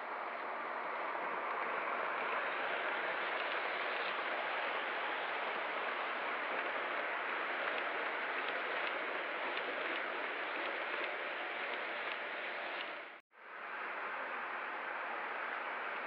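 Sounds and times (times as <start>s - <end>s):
model trains rolling on track: 0.0s - 16.0s
faint clicks: 1.0s - 13.2s.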